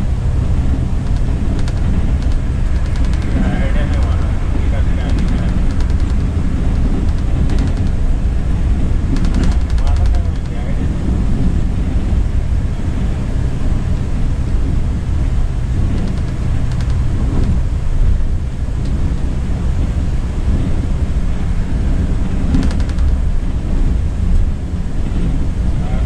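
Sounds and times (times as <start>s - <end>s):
diesel engine drone: 0.0s - 26.0s
road noise: 0.0s - 26.0s
faint rattling clicks: 1.0s - 8.0s, 9.1s - 10.8s, 15.9s - 17.6s, 22.5s - 23.2s.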